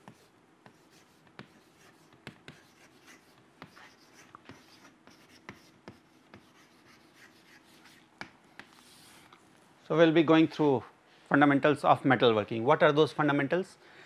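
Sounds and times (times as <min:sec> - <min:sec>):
chalk tapping on a board: 0:00.0 - 0:08.9
chalk scratching on a chalkboard: 0:00.0 - 0:09.3.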